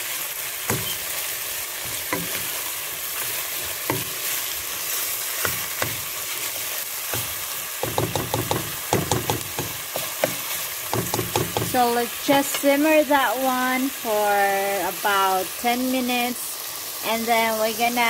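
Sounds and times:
meat sizzling in a frying pan: 0.0 - 18.0
spatula scraping and knocking pan: 0.7 - 1.1, 1.8 - 12.8.

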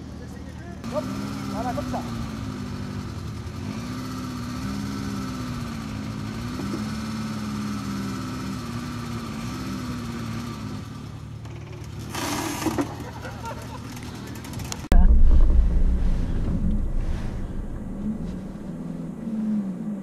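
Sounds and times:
engine running at low revs: 13.9 - 20.0
short burst of noise: 14.9 - 19.5.

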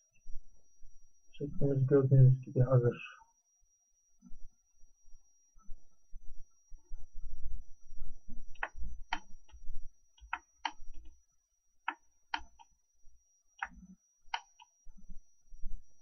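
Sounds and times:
computer mouse buttons clicking: 8.6 - 9.3, 10.2 - 11.1, 11.8 - 12.7, 13.6 - 14.7.

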